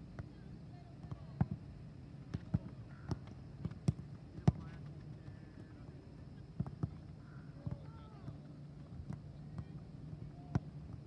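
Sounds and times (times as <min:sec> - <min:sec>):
soccer ball kicks thudding: 0:02.3 - 0:04.8, 0:06.6 - 0:07.0.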